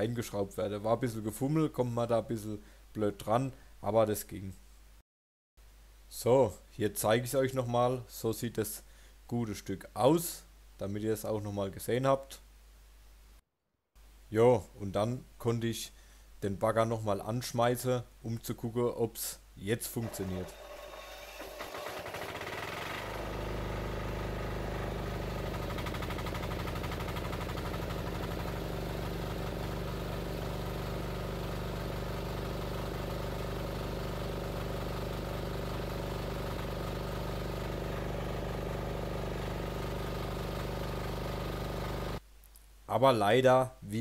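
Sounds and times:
mini excavator engine running: 20.0s - 42.2s.

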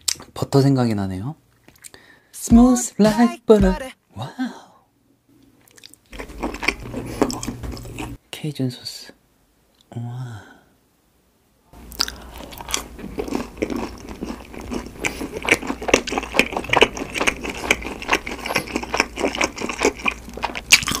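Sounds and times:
person chewing crispy food: 5.6s - 8.2s, 11.8s - 21.0s.

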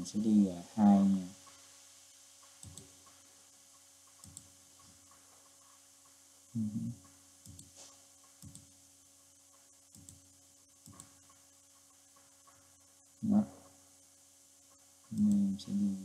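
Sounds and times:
low steady hum: 0.0s - 16.0s
computer mouse clicking: 2.4s - 6.2s, 7.0s - 8.8s, 9.5s - 12.8s, 14.7s - 15.9s.

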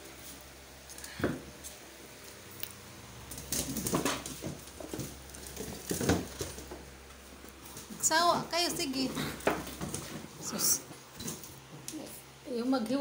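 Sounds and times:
puppies scrabbling on wooden board: 3.3s - 12.0s.

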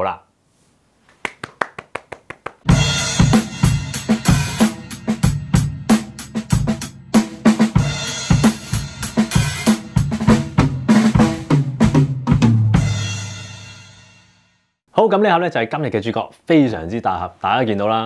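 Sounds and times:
drum-kit beat music: 2.6s - 13.8s.

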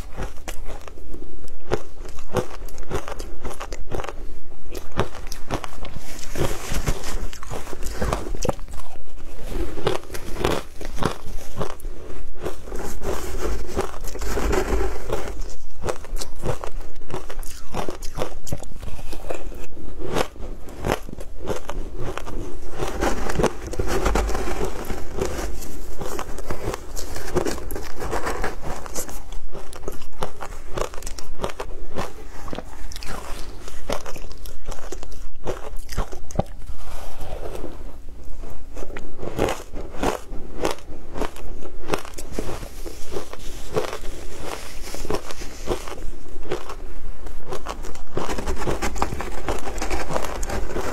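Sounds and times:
chewing crunchy ice: 0.0s - 50.9s.

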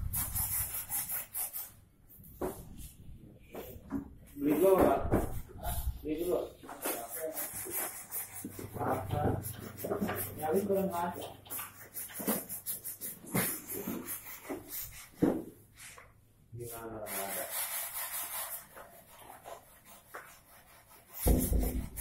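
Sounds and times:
sandpaper rubbing on wood: 0.0s - 1.8s, 5.7s - 15.2s, 16.6s - 22.0s.

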